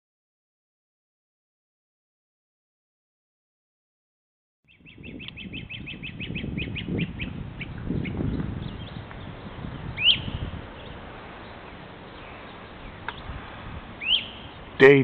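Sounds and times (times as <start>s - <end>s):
wild birds chirping: 4.7s - 15.0s.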